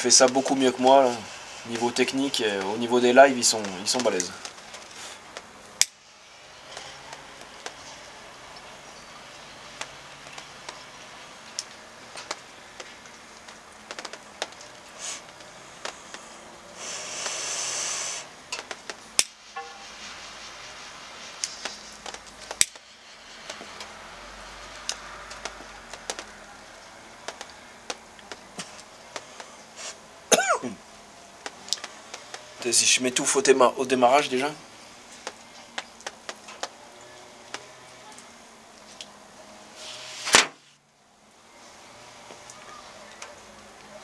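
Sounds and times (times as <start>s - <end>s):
lighter flame hissing: 0.1s - 33.3s, 38.8s - 40.5s
lip smacks puffing cigar: 11.6s - 26.4s.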